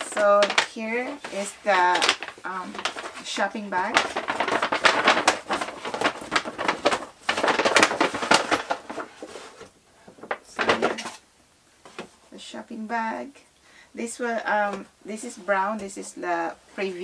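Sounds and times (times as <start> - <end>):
paper bag crinkling and rustling: 0.0 - 11.2.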